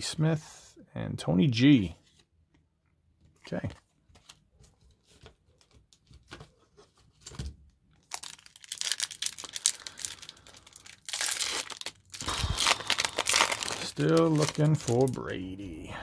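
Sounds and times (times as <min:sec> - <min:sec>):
foil wrapper crinkling and tearing: 0:08.0 - 0:15.6.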